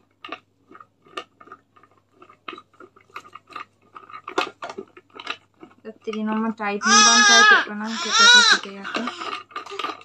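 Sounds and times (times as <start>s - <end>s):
plastic juicer parts clicking: 4.1s - 10.0s.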